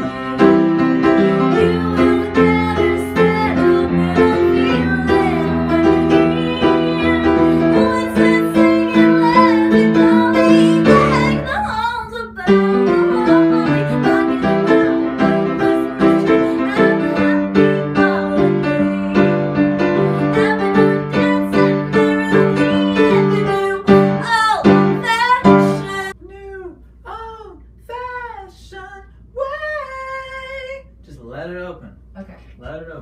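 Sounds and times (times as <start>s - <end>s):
upright piano chords: 0.0s - 26.2s
woman singing: 0.0s - 30.9s.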